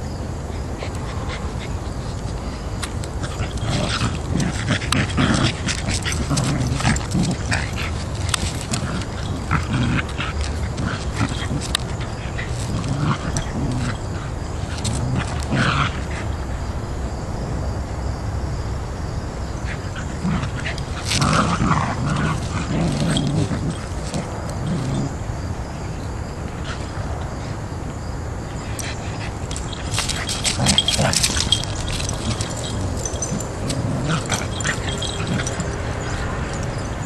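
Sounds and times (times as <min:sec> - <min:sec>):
dogs growling and grunting: 0:02.9 - 0:16.5, 0:19.6 - 0:25.6, 0:28.6 - 0:37.0.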